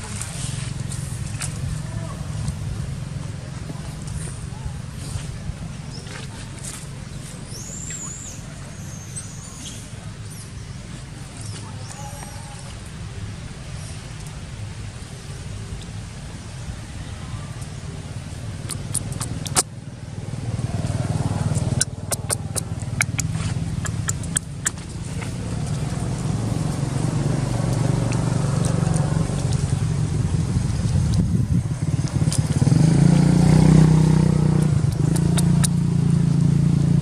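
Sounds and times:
vehicle engine running: 0:00.0 - 0:37.0
sharp clicks and crackles: 0:18.6 - 0:19.7, 0:20.8 - 0:26.3, 0:34.6 - 0:35.9.

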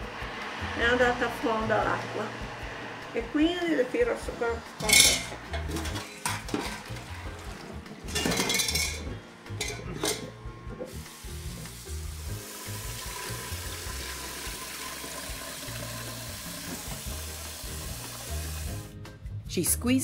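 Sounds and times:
running tap water: 0:04.8 - 0:09.0, 0:09.6 - 0:18.9
water splashing and dripping in sink: 0:04.8 - 0:09.0, 0:10.9 - 0:18.8.

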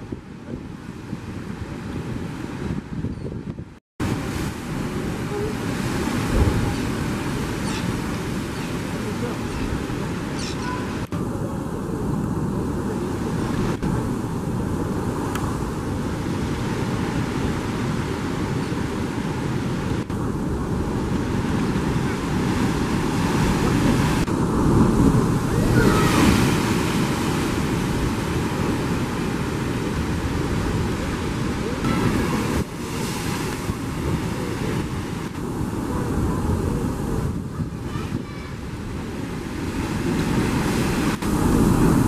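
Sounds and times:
wind on microphone: 0:00.0 - 0:42.0
surf breaking on rocks: 0:19.9 - 0:42.0.

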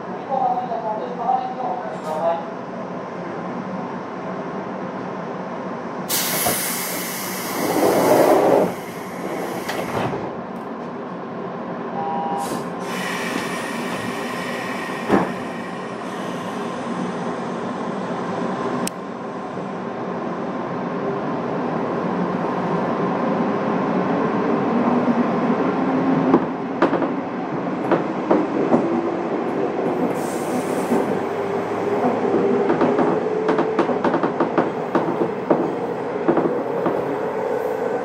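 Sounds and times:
electric train running hum: 0:12.8 - 0:38.0.

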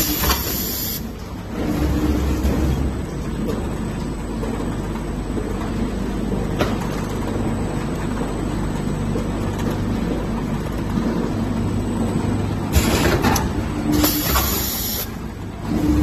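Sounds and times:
packing machine humming: 0:00.0 - 0:16.0
pneumatic air hiss: 0:14.0 - 0:15.1.

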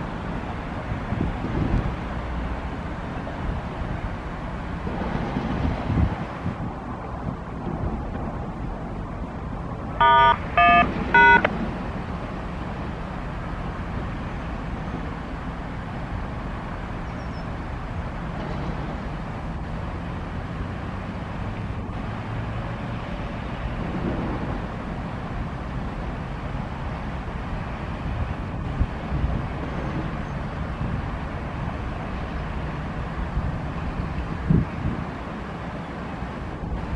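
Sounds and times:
highway traffic rumble: 0:00.0 - 0:36.9
wind: 0:00.0 - 0:36.9
horn blasts: 0:10.0 - 0:11.5.

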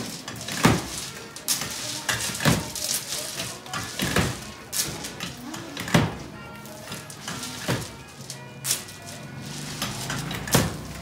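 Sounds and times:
candy slapping against metal hook: 0:00.0 - 0:06.3.

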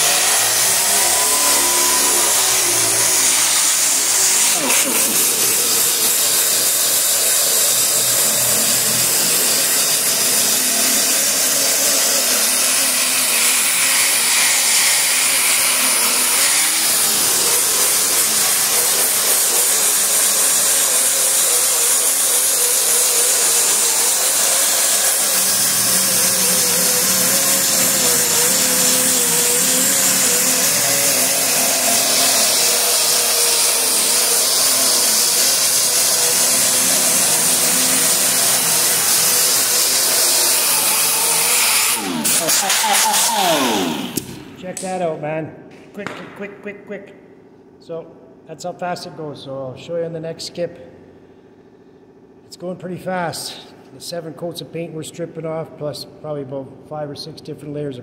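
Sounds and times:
air sander grinding metal: 0:00.0 - 0:44.4.

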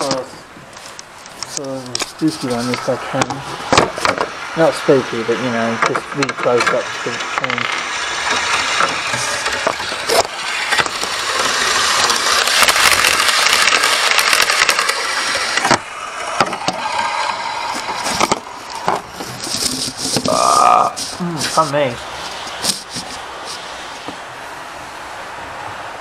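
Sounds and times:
model train rattling past: 0:04.0 - 0:20.1.

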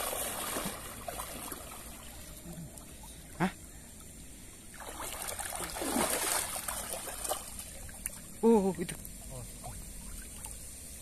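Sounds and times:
water splashing around legs: 0:04.7 - 0:08.4.

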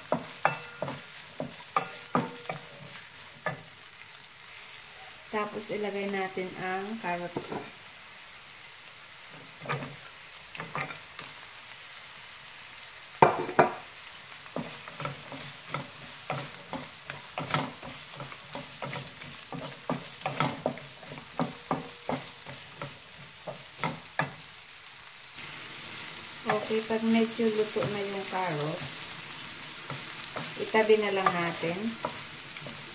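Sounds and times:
spatula scraping a pan: 0:00.0 - 0:03.7, 0:14.6 - 0:24.4
light sizzle: 0:00.0 - 0:32.9.

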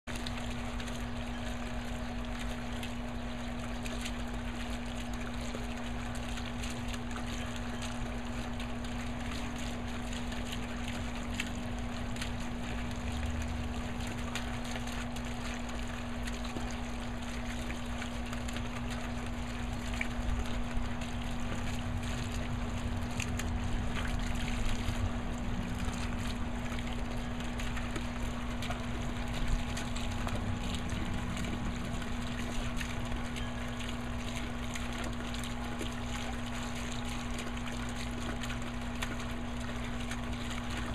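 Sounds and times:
fountain water bubbling and splashing: 0:00.0 - 0:40.9
steady low hum: 0:00.1 - 0:40.9.

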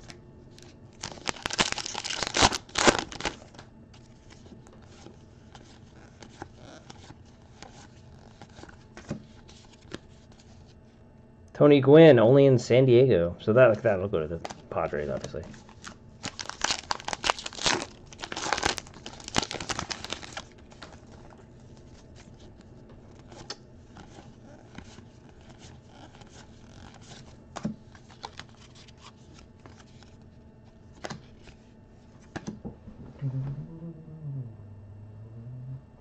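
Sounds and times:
wrapper tearing and crinkling: 0:00.5 - 0:03.6, 0:04.9 - 0:08.8, 0:15.5 - 0:21.2, 0:28.0 - 0:29.1.

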